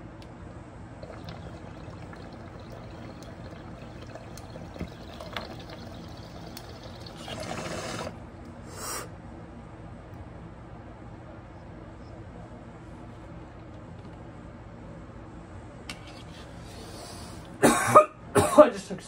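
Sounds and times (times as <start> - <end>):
bong water bubbling: 1.0 - 8.2
rushing air burst: 5.7 - 9.0.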